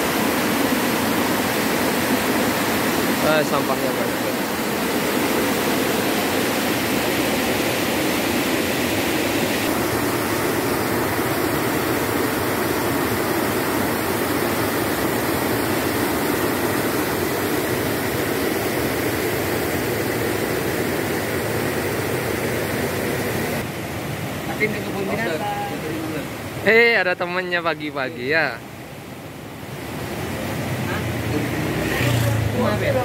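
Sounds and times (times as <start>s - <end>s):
river water rushing over weir: 0.0s - 27.2s, 28.5s - 33.0s.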